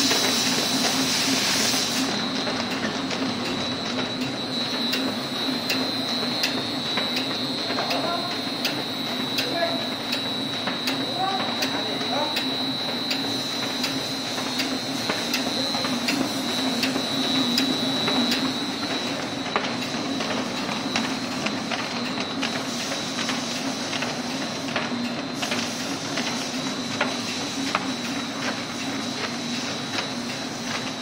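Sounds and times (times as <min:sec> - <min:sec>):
hiss: 0:00.0 - 0:02.1
machine humming with high whine: 0:00.0 - 0:31.0.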